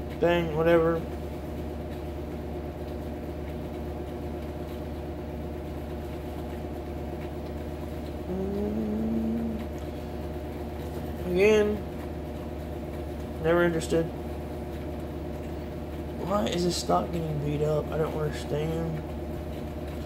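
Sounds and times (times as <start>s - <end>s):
steady machine hum: 0.0s - 20.0s
man murmuring: 8.3s - 9.6s.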